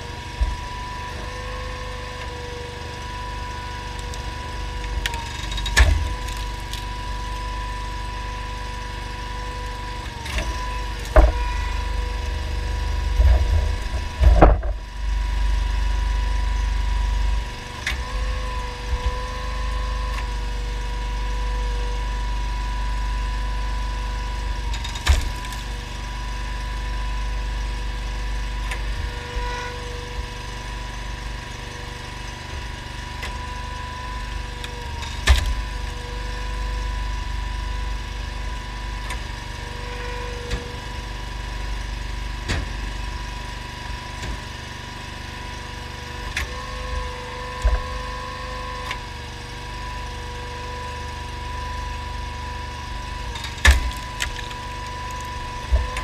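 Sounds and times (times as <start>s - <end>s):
log splitter engine running: 0.0s - 56.0s
logs cracking and splitting: 3.9s - 7.6s.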